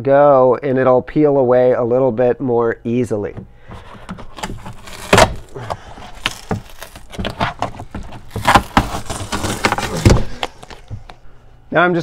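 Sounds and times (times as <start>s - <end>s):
foam pad peeling off plastic: 3.7s - 11.2s
glue tearing and scraping: 3.8s - 11.2s.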